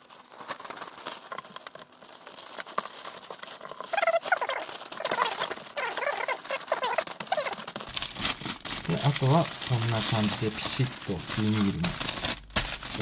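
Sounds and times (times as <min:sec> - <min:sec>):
plastic bag crinkling: 0:00.0 - 0:13.0
high wavering squeaks: 0:03.8 - 0:07.7.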